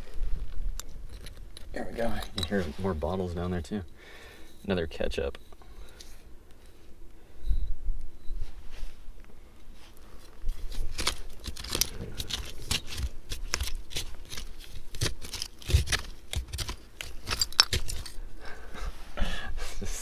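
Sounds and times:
hand tool scraping gritty soil: 1.9s - 3.8s, 10.2s - 18.2s.

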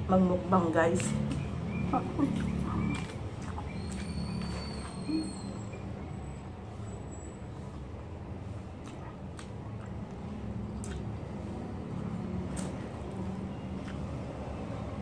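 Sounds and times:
mouth smacks and clicks: 0.9s - 5.9s, 8.7s - 14.3s
person chewing: 2.1s - 5.4s, 8.8s - 11.2s, 11.9s - 14.2s.

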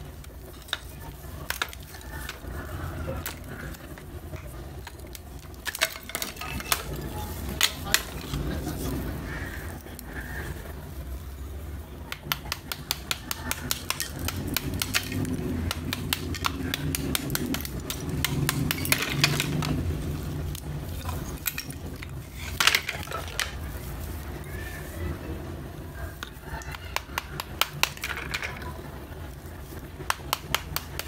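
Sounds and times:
clay layers crackling: 0.0s - 31.0s
small hammer tapping clay: 12.1s - 19.8s, 26.6s - 28.2s, 30.0s - 31.0s
loud crack: 12.1s - 23.7s.

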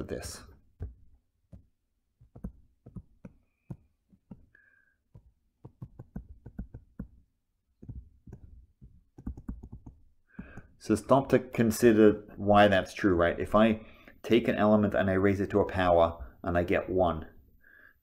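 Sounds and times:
stylus tapping on tablet screen: 0.7s - 10.8s.

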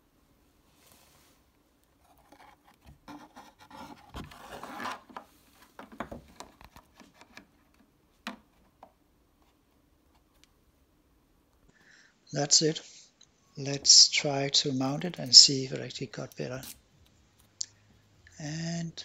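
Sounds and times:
wood rubbing and scraping plastic: 2.0s - 10.4s.

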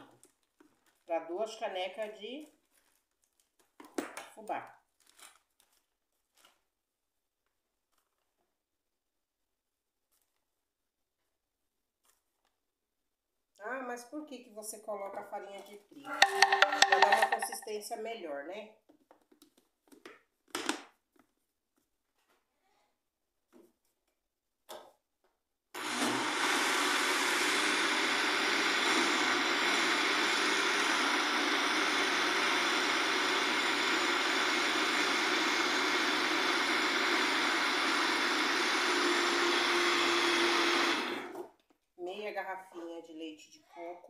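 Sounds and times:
blender running: 16.1s - 17.6s, 25.8s - 41.5s.

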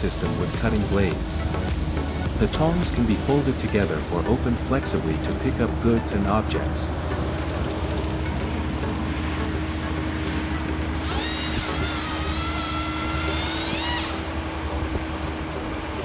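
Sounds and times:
excavator engine drone: 0.0s - 16.0s
high-pitched hydraulic whine: 8.2s - 16.0s.

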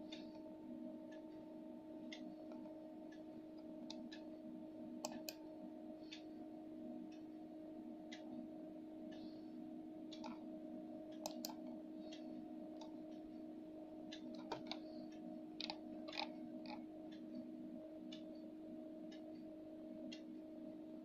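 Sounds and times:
steady low hum: 0.0s - 21.0s
computer mouse clicking: 10.2s - 10.4s, 11.2s - 12.2s, 12.8s - 13.0s, 14.1s - 15.0s, 15.6s - 16.8s.

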